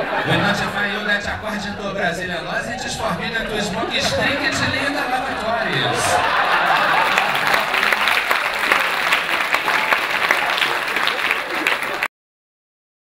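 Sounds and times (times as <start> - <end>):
voices: 0.0 - 12.1
audience applauding: 4.0 - 12.1.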